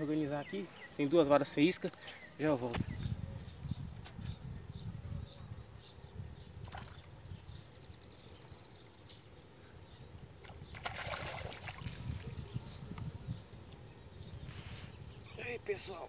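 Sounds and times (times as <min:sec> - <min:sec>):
wind on microphone: 0:02.7 - 0:08.3, 0:09.8 - 0:15.7
fish splashing out of water: 0:10.4 - 0:12.2.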